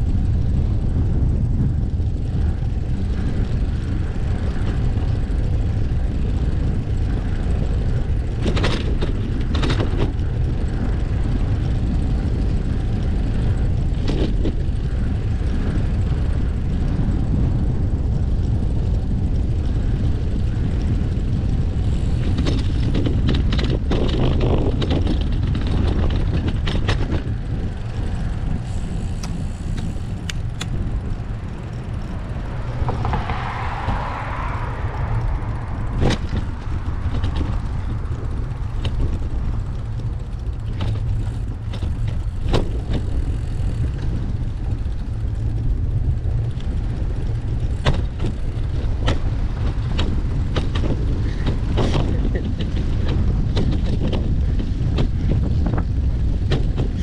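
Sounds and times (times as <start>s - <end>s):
bike clicks and rattles: 0.0s - 57.0s
wind rumble on microphone: 0.0s - 57.0s
rushing swell: 31.0s - 37.1s.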